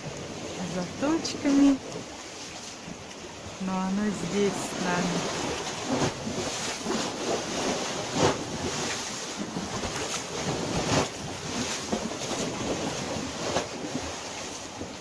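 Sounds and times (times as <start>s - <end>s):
small waves washing ashore: 0.0s - 15.0s
water splashes: 0.0s - 15.0s
wind noise on microphone: 4.2s - 15.0s.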